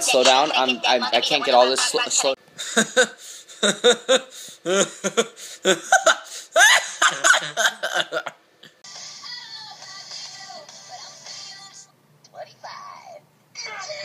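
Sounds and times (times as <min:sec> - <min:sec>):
young man laughing: 0:00.0 - 0:08.4
pop music: 0:08.9 - 0:11.9.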